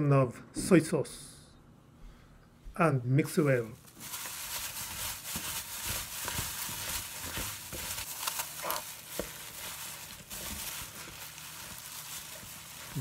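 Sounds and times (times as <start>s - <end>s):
plastic bag crinkling: 3.5s - 13.0s
radish cubes squishing: 3.8s - 13.0s.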